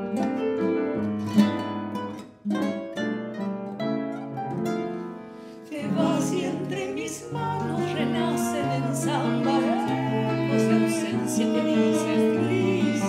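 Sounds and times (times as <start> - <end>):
nylon-string guitar playing: 0.0 - 13.0
woman singing: 5.6 - 13.0.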